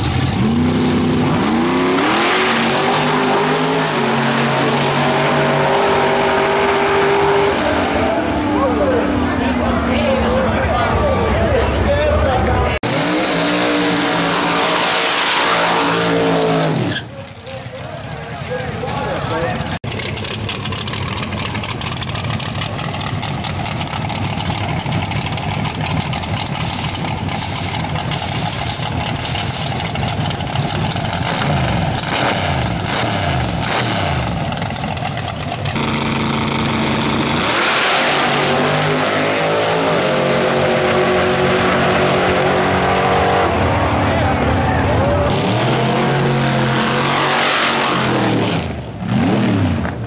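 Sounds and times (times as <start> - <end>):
engine revving: 0.0 - 9.3, 12.8 - 17.1, 19.8 - 50.0
drag race engines accelerating: 0.0 - 50.0
tyres spinning: 16.9 - 31.3.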